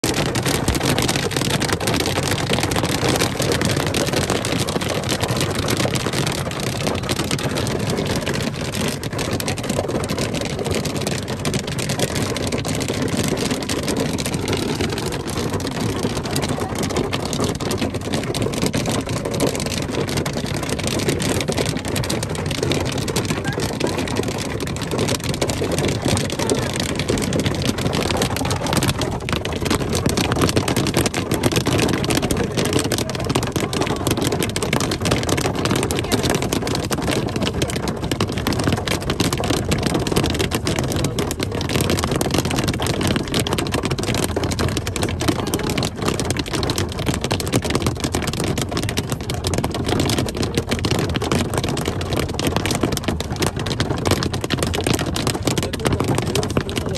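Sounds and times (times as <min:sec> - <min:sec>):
hail and rain striking a car: 0:00.0 - 0:56.9
tyres on a hail-covered road: 0:00.0 - 0:56.9.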